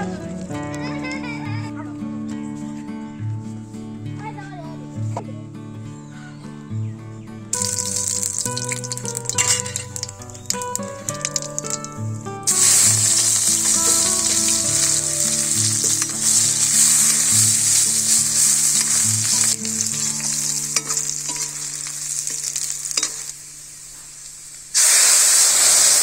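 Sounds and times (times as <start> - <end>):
onions sizzling in hot oil: 7.5 - 26.0
metal spatula scraping: 7.6 - 11.8, 12.5 - 23.3.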